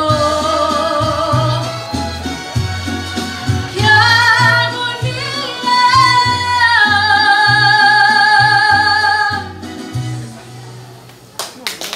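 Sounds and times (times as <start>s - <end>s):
woman singing a ballad: 0.0s - 1.8s, 3.7s - 9.6s
musical accompaniment with bass: 0.0s - 11.4s.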